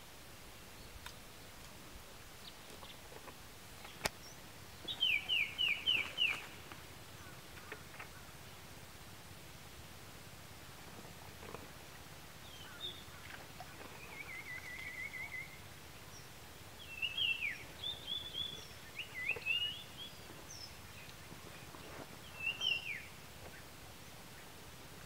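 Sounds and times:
outdoor hiss: 0:00.0 - 0:25.0
small birds chirping: 0:02.4 - 0:08.7, 0:12.4 - 0:25.0.

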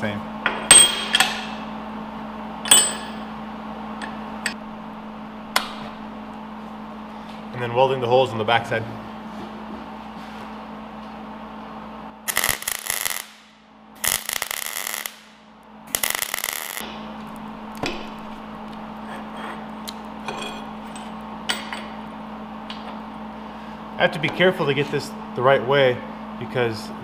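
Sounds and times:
steady low hum: 0:00.0 - 0:27.0
welder crackling: 0:12.3 - 0:13.4, 0:14.0 - 0:18.8.

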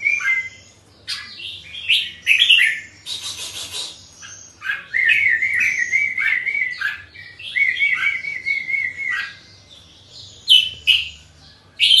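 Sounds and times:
bird sharp calls: 0:00.0 - 0:09.4
bird warbling song: 0:00.0 - 0:12.0.

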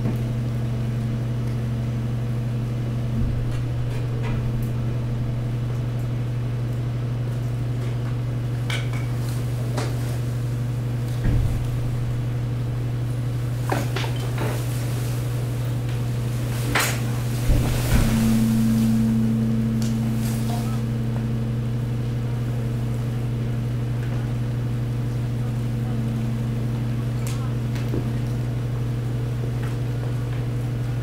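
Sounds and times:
hydraulic pump humming: 0:00.0 - 0:08.6, 0:09.4 - 0:31.0
low thump: 0:11.2 - 0:12.2, 0:17.4 - 0:21.7.

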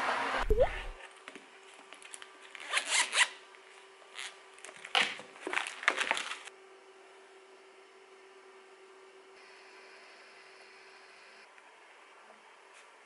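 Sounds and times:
faint steady hum: 0:06.5 - 0:13.0.

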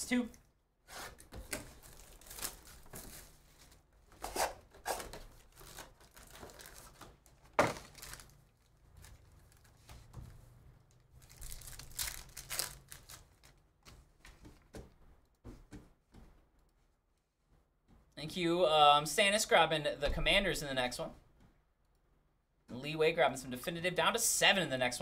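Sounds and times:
plastic wrappers crinkling and tearing: 0:01.4 - 0:03.8, 0:04.8 - 0:09.9, 0:10.9 - 0:13.9.

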